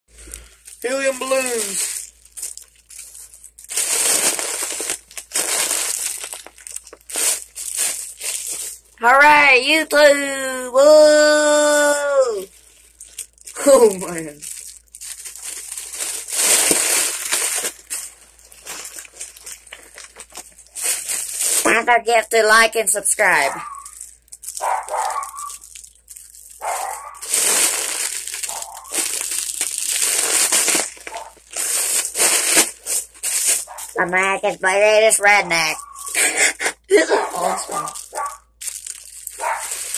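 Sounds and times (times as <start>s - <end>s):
foil balloon crinkling: 0.1s - 10.2s, 10.8s - 39.9s.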